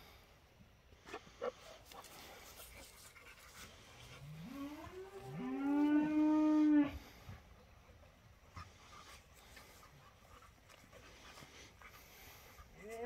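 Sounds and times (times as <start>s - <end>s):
cow mooing: 4.4s - 7.0s.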